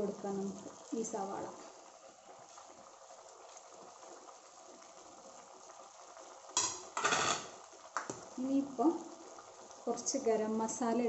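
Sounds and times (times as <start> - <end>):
chicken simmering in a pan: 0.0 - 11.0
pan rattle: 6.6 - 7.5.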